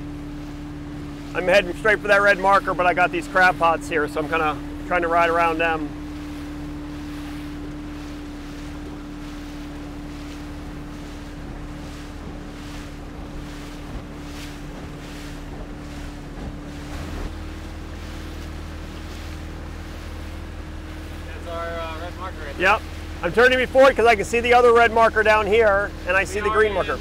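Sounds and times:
motorboat engine drone: 0.0 - 27.0
water slapping along hull: 0.0 - 27.0
wind buffeting microphone: 0.4 - 27.0.

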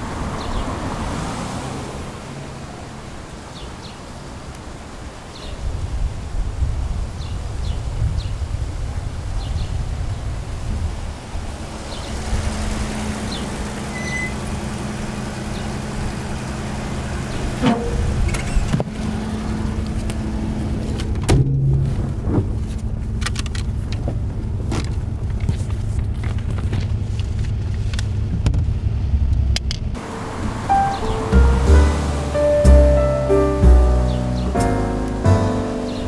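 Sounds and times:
car engine humming: 11.5 - 28.0, 28.9 - 36.0.

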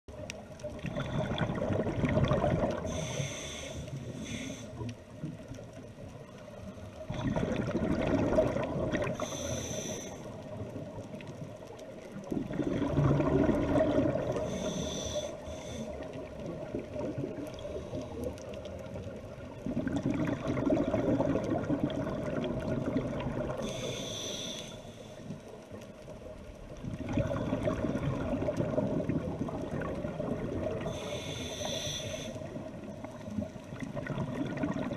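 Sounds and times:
bubbling regulator exhalations: 0.8 - 3.2, 7.1 - 9.4, 12.3 - 15.1, 19.6 - 23.8, 26.9 - 32.6, 33.8 - 34.9
regulator inhalation hiss: 2.9 - 4.9, 9.2 - 10.4, 14.4 - 16.1, 23.6 - 25.4, 30.8 - 32.6.

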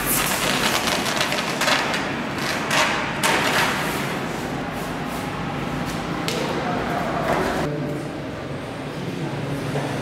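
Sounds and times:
paper sheets rustling: 0.0 - 4.0.

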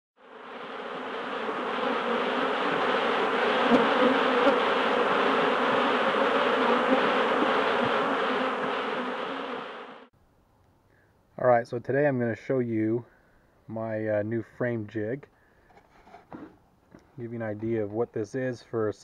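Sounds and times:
bees buzzing: 0.2 - 10.1.

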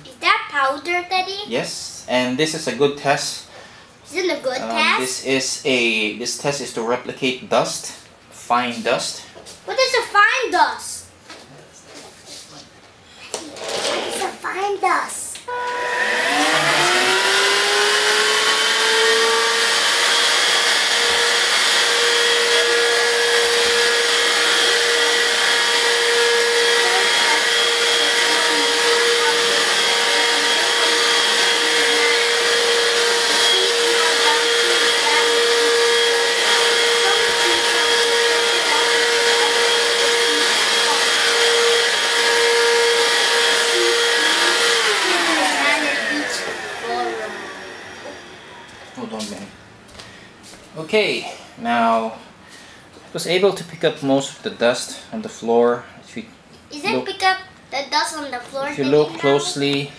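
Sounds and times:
stick vacuum whining: 15.4 - 50.1.

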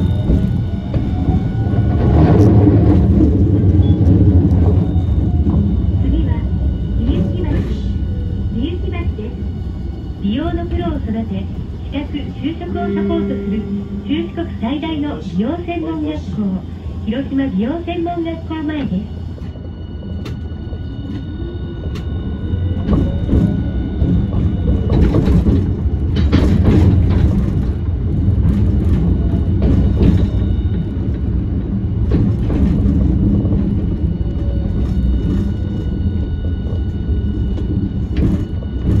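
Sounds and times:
tram wheels rumbling on rail: 0.0 - 39.0
faint high tones: 4.8 - 17.2
clacks over track: 22.8 - 39.0.

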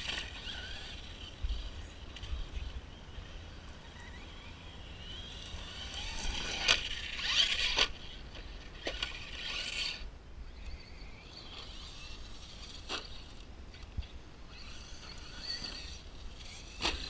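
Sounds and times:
tyres scraping over gravel: 0.0 - 10.0, 14.5 - 17.0
rc truck motor whining: 0.0 - 17.0.

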